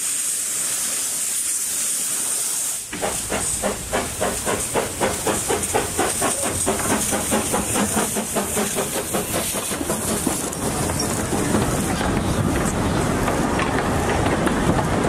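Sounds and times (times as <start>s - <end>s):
steam hissing: 0.0s - 15.0s
steam locomotive exhaust chuffing: 0.1s - 15.0s.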